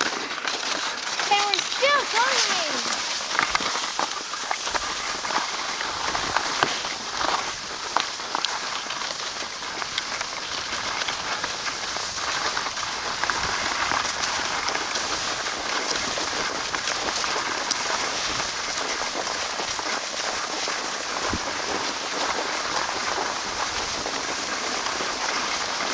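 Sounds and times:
skis sliding over packed snow: 0.0 - 25.9.

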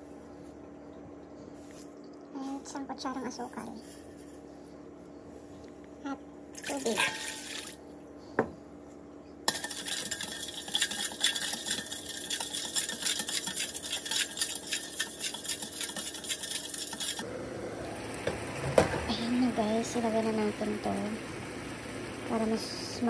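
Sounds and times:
water pouring into metal bowl: 6.6 - 7.8, 9.5 - 17.2
metal spoon stirring in bowl: 6.8 - 7.6, 9.5 - 17.2.

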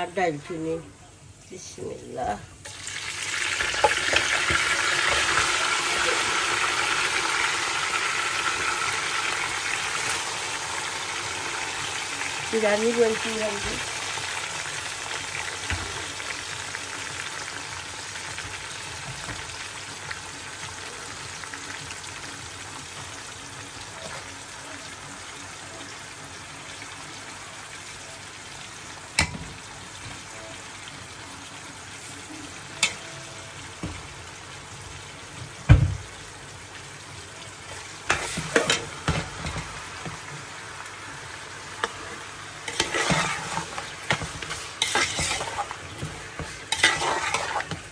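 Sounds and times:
food sizzling in hot oil: 0.0 - 47.9
stirring in a pot: 38.1 - 39.6, 41.8 - 47.9.

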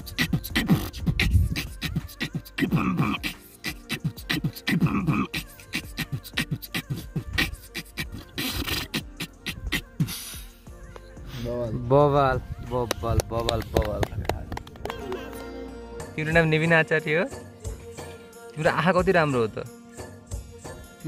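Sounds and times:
beatboxing: 0.0 - 10.6.

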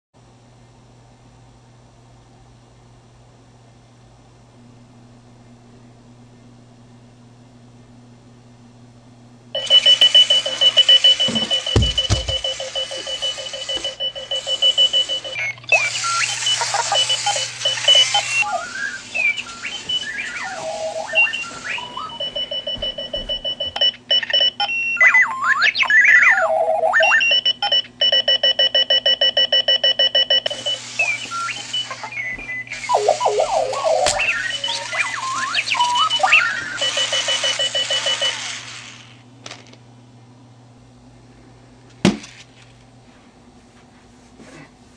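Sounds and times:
robot-like alarm clock beeping: 9.6 - 39.0.

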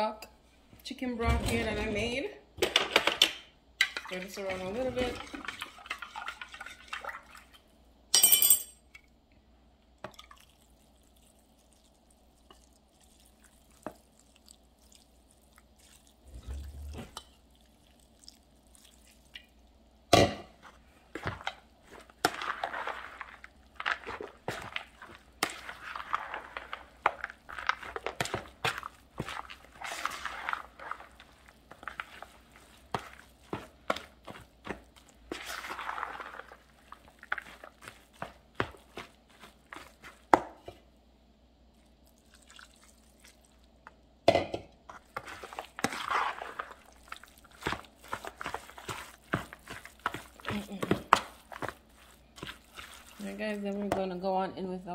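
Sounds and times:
metal spoon stirring wet crumbs: 2.7 - 9.1, 10.0 - 40.9, 41.7 - 54.6
wet scraping strokes: 21.8 - 40.4, 44.9 - 54.1
broth pouring into bowl: 41.8 - 43.6.

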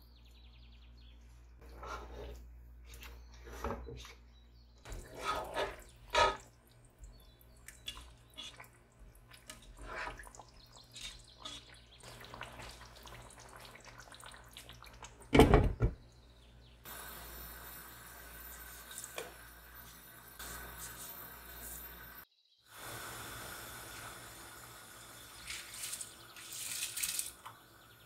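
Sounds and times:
water splashing and dripping: 4.9 - 15.4, 25.3 - 27.7
steady hiss: 16.9 - 27.2.

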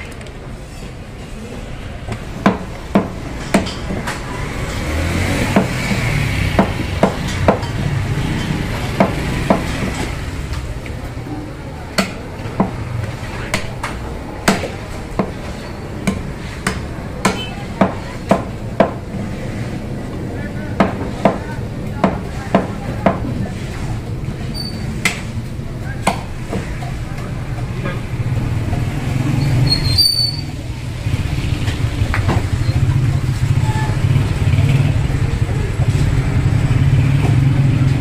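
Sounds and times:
steady background noise: 0.0 - 38.0
cleaver chopping meat on wood: 2.4 - 4.1, 5.2 - 7.7, 8.9 - 9.8, 12.0 - 12.8, 13.5 - 15.4, 16.0 - 19.0, 20.8 - 23.2.

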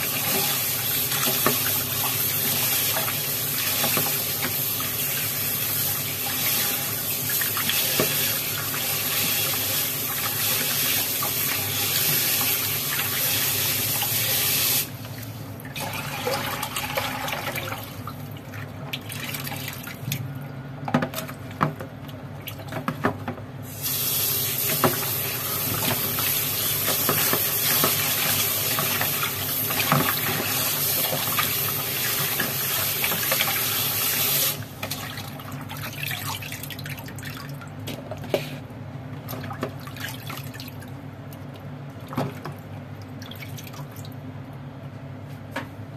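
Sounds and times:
meat rubbed and rinsed by hand: 0.0 - 20.3, 23.7 - 37.5
tap water running into basin: 0.0 - 20.3, 20.9 - 38.4.

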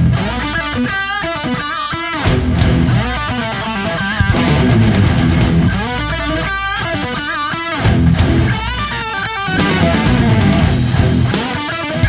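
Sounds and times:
rock music with electric guitar: 0.0 - 12.0.

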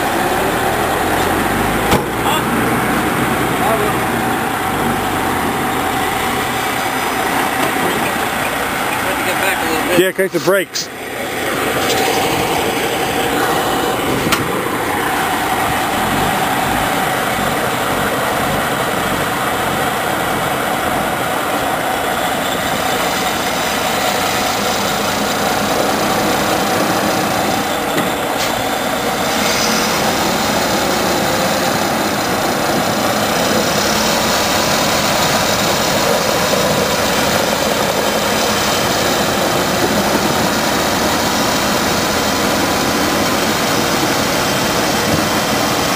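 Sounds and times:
diesel truck engine running: 0.0 - 45.9.

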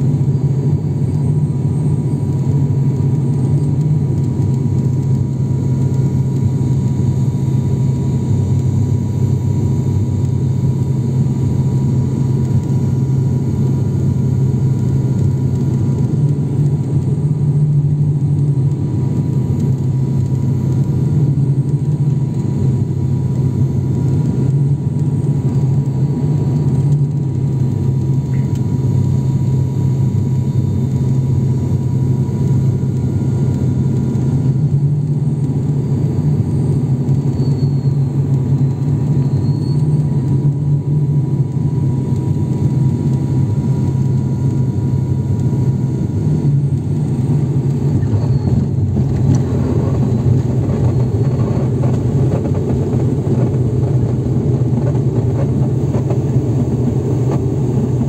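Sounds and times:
turboprop engine droning: 0.0 - 58.0.

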